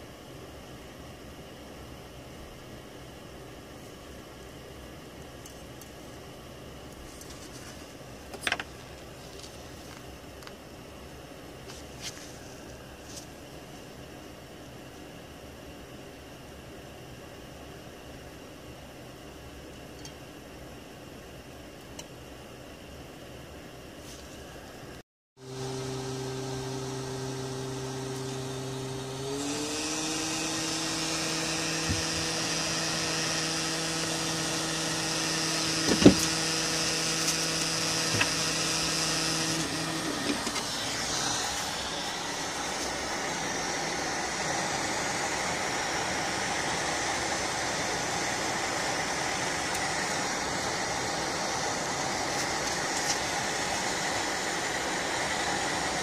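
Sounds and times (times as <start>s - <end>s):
hot air blower humming: 24.0s - 56.0s.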